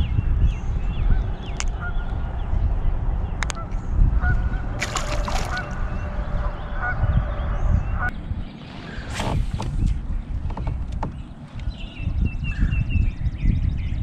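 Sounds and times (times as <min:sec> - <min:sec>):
wind rumble on microphone: 0:00.0 - 0:14.0
geese honking: 0:03.6 - 0:08.1.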